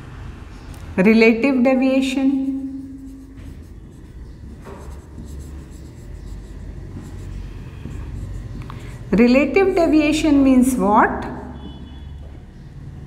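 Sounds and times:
low room hum: 0.0 - 13.0
marker squeaking on whiteboard: 2.3 - 10.4, 11.2 - 12.7.

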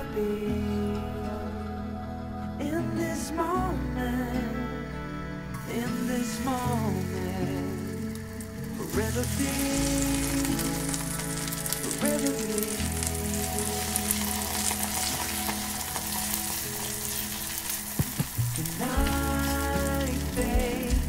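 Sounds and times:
batter sizzling in a frying pan: 7.9 - 20.9.

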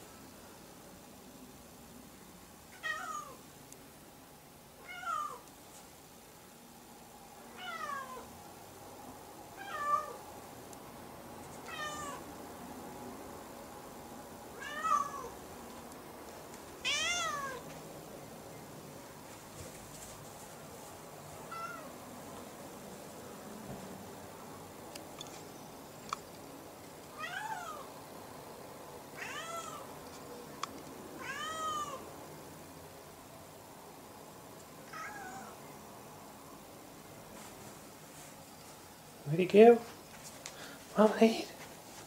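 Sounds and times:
cat meowing: 2.8 - 3.4, 4.8 - 5.4, 7.5 - 8.3, 9.6 - 10.2, 11.6 - 12.2, 14.5 - 15.3, 16.8 - 17.6, 21.5 - 21.9, 27.2 - 27.9, 29.2 - 29.9, 31.2 - 32.0, 34.9 - 35.6.

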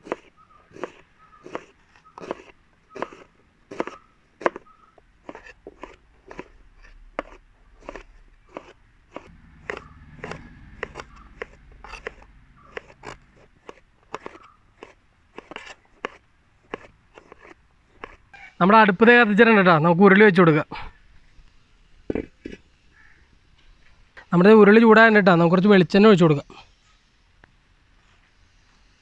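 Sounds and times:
knives chopping on cutting boards: 0.0 - 4.6, 7.2 - 18.2.

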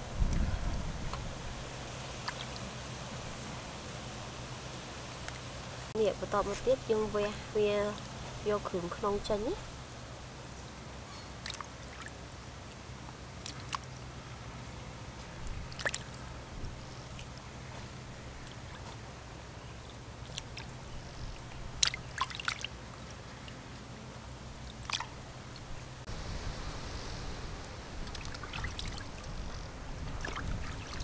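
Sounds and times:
water splashing in a steel basin: 2.1 - 2.7, 11.4 - 12.2, 13.4 - 13.9, 15.6 - 16.2, 20.1 - 23.6, 24.6 - 25.8, 28.0 - 29.4, 30.1 - 31.0.

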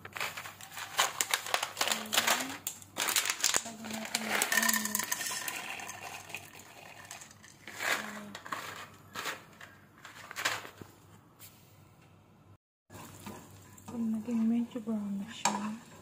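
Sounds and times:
nuts clattering in frying pan: 0.0 - 10.8.

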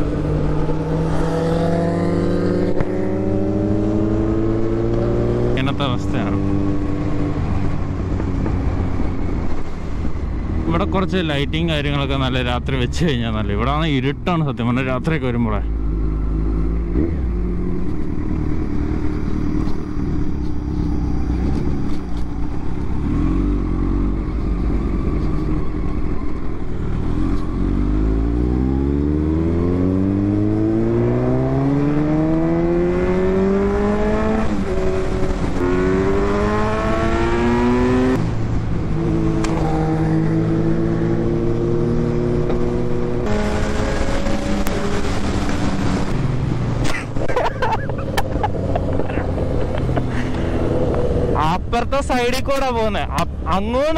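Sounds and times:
motorcycle engine accelerating: 0.0 - 12.4, 15.6 - 51.7.

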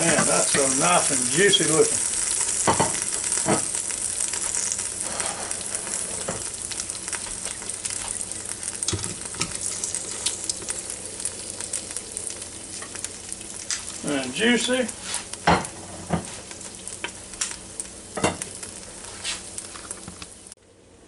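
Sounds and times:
chicken sizzling and crackling: 0.0 - 20.8.

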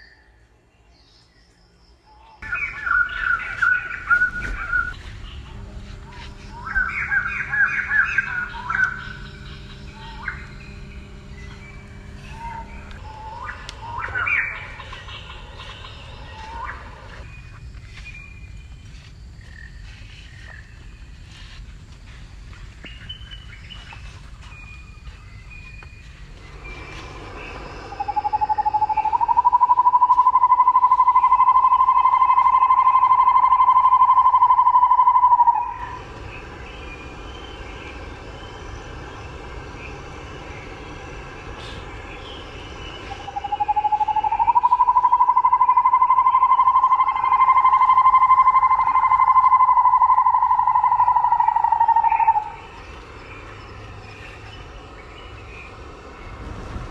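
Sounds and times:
loud high drone: 2.4 - 17.4, 25.1 - 56.9.

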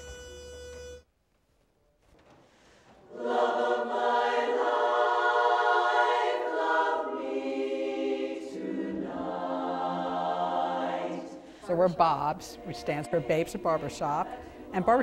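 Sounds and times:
women's chorus singing a cappella: 3.0 - 15.0.

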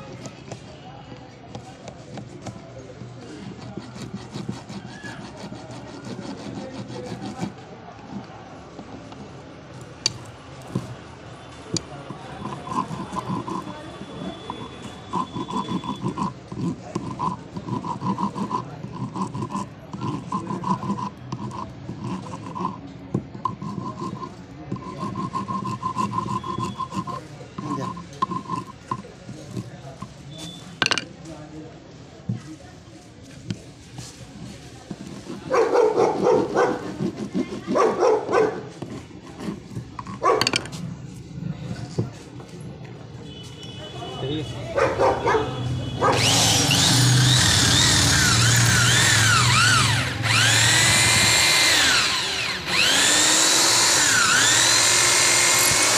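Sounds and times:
metal file rasping on metal: 2.4 - 7.7, 11.7 - 30.5, 34.4 - 40.8, 46.1 - 55.9
dog barking: 35.5 - 37.0, 37.7 - 38.7, 40.2 - 40.5, 44.8 - 46.3.

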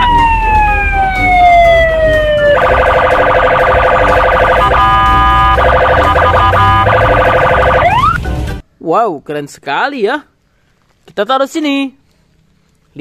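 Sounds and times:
police siren: 0.0 - 8.2.

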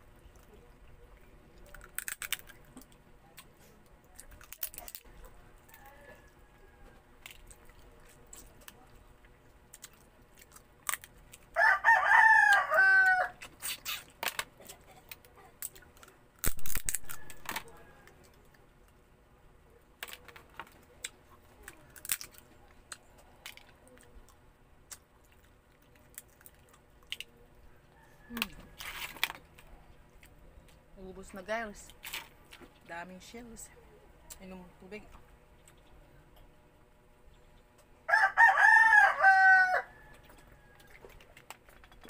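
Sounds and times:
crab shell cracking: 1.6 - 3.5, 4.1 - 6.0, 7.2 - 8.8, 9.6 - 18.6, 20.0 - 24.1
rooster crowing: 5.7 - 7.0, 11.6 - 13.4, 38.1 - 41.1.

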